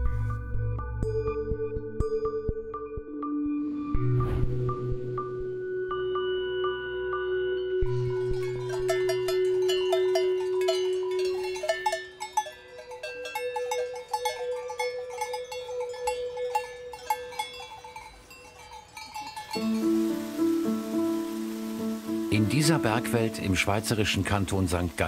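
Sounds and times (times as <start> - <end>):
cowbells clanging: 8.0 - 21.1.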